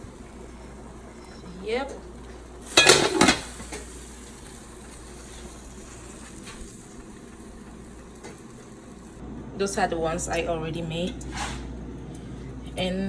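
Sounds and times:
low kitchen background: 0:00.0 - 0:13.0
metal cookware clattering: 0:01.2 - 0:04.0.

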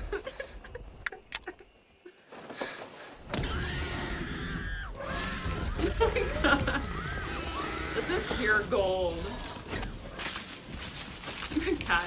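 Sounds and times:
sharp clicks: 0:01.0 - 0:01.6.

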